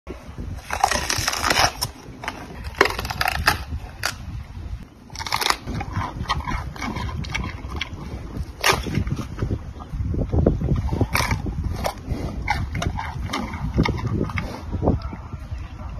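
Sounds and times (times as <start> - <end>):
bamboo stalk cracking: 0.6 - 2.0, 2.6 - 4.2, 5.1 - 5.6
panda chewing bamboo: 5.1 - 9.5.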